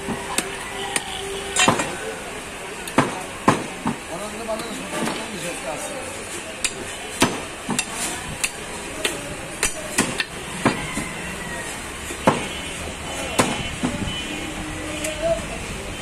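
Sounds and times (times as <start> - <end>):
cleavers chopping meat on wood: 0.0 - 2.0, 2.8 - 4.0, 6.6 - 11.2, 12.0 - 12.6, 13.2 - 14.0.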